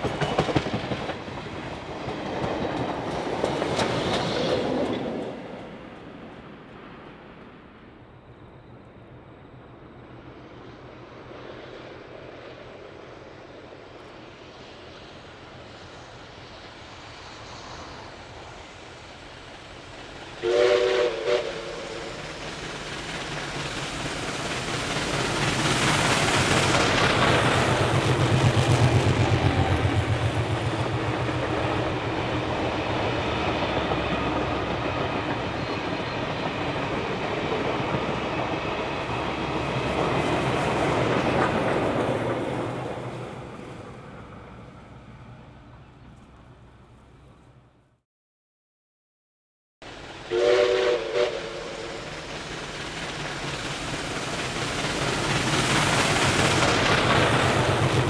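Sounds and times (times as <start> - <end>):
train wheels clicking over rails: 0.0 - 6.5, 19.2 - 43.9, 50.1 - 58.0
steam locomotive exhaust beats: 13.8 - 42.8, 49.8 - 58.0
steam whistle blasts: 20.4 - 22.2, 50.3 - 52.1.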